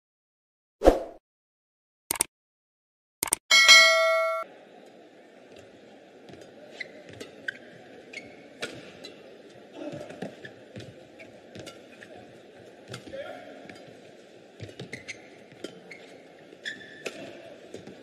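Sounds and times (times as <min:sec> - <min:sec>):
sports hall background noise: 0:03.5 - 0:18.0
shoe squeaks on court floor: 0:14.8 - 0:15.3, 0:15.9 - 0:17.0.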